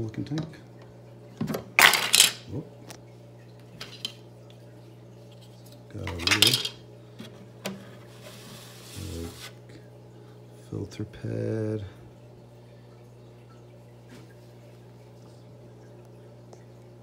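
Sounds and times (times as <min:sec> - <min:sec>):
plastic parts clinking on glass: 0:01.8 - 0:02.4, 0:06.1 - 0:06.8.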